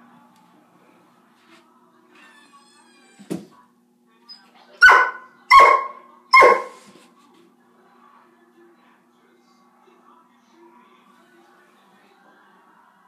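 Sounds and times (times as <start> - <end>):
dog barking: 4.8 - 6.8.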